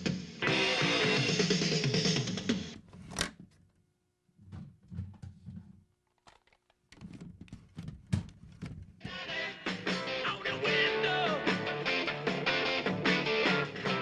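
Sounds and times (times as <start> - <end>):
music from tape player: 0.0 - 2.8, 9.0 - 14.0.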